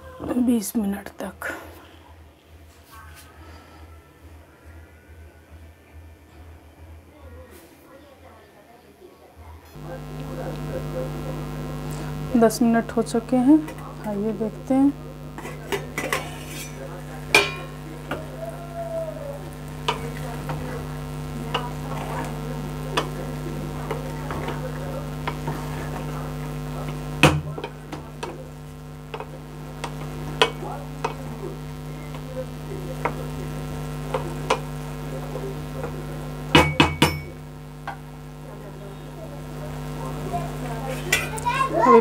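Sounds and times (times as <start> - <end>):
steady low hum: 9.7 - 41.1
metal spatula scraping pot: 15.4 - 16.8.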